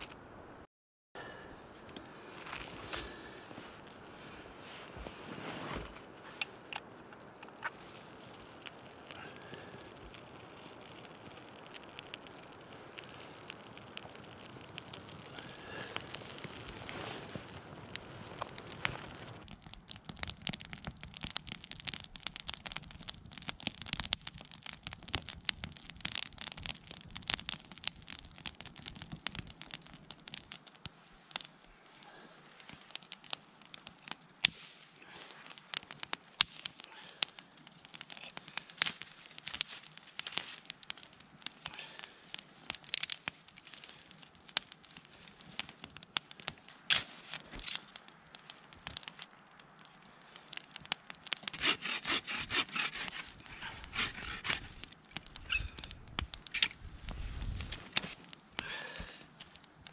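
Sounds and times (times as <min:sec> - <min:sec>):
campfire crackling and popping: 0:00.0 - 0:59.9
scraping and snapping: 0:51.3 - 0:56.8.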